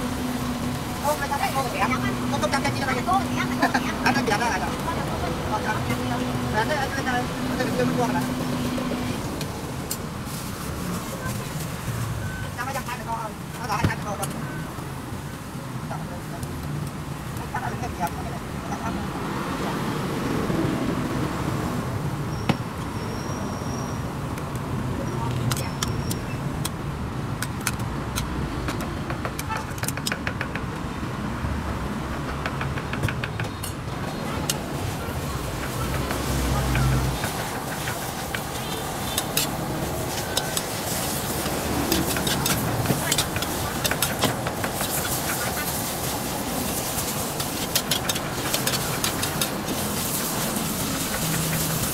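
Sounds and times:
street traffic: 0.0 - 51.9
food sizzling in a pan: 36.2 - 51.9
metal utensil scraping a pan: 46.8 - 51.9.

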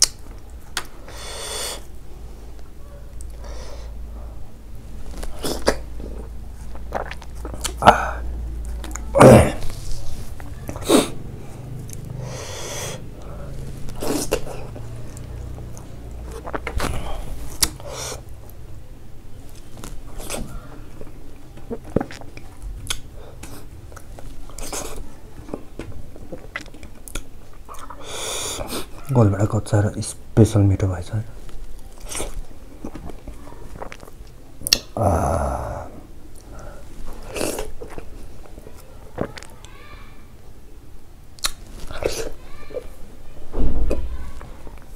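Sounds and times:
lip-smack clicks: 0.0 - 0.9, 34.6 - 35.0, 41.4 - 41.6
mouth smacks and chewing: 0.0 - 1.0, 5.1 - 7.8, 11.8 - 12.2, 13.9 - 18.6, 19.5 - 29.0, 31.8 - 35.0, 37.1 - 39.7, 41.3 - 42.4
breathy hiss: 1.0 - 1.9, 12.1 - 14.5
wet bite: 6.7 - 9.6, 21.7 - 25.0, 32.0 - 35.2, 41.4 - 42.3
mouth click: 34.6 - 35.0.

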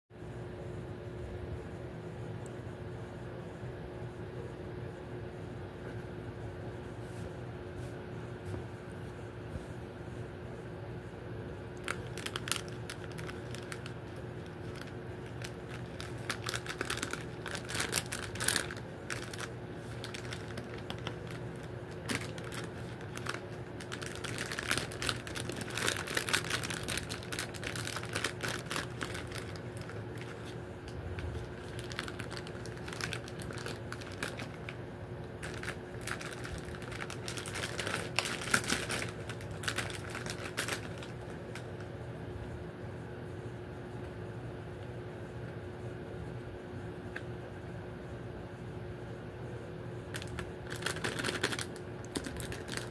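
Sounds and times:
steady background hum: 0.1 - 52.9
plastic wrappers crinkling: 11.8 - 41.8, 50.1 - 52.9.

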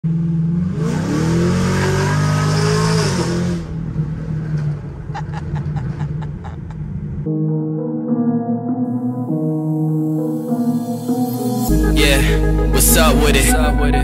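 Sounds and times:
car engine revving: 0.1 - 7.3.

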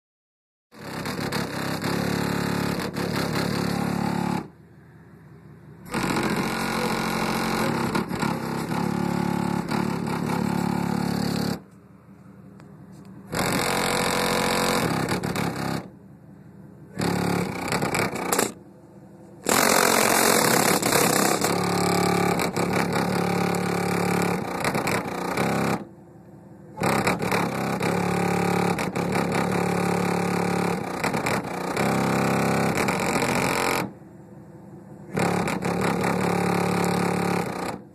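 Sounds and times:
distorted bass-heavy music: 5.9 - 11.6.

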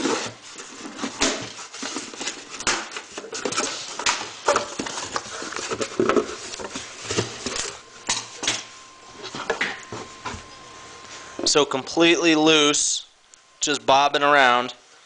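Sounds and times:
cardboard and tape tearing: 0.0 - 6.5.

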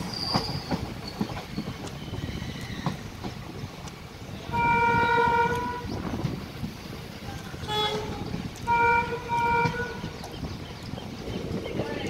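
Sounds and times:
train running rumble: 0.0 - 12.0
locomotive horn blasts: 4.5 - 5.9, 7.6 - 10.2.

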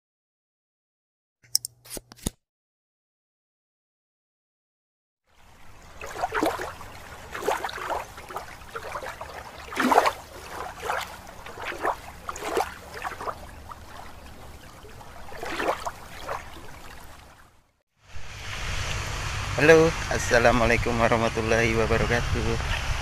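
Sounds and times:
underwater bubbling and gurgling: 5.7 - 17.6
low rumble: 18.1 - 23.0.

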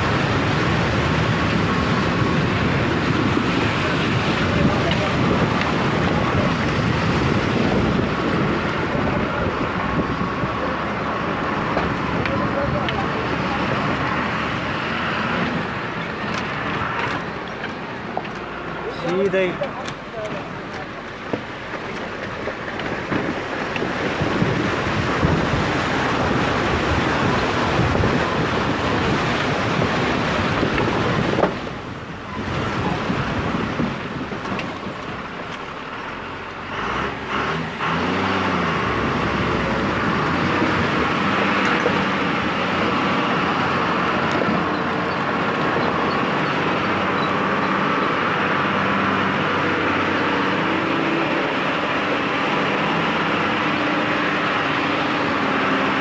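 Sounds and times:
vehicle driving over gravel: 0.0 - 35.9
engine revving: 36.6 - 56.0.

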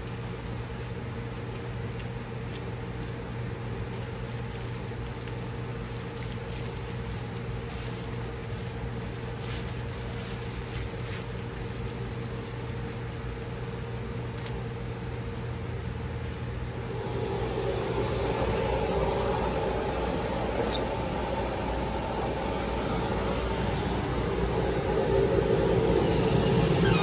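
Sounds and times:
cutting machine humming: 16.8 - 27.0.

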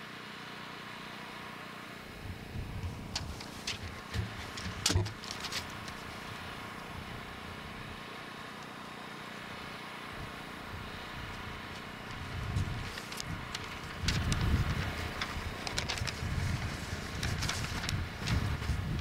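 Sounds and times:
faint constant hum: 0.0 - 19.0
sharp clicks and knocks: 2.8 - 6.1.

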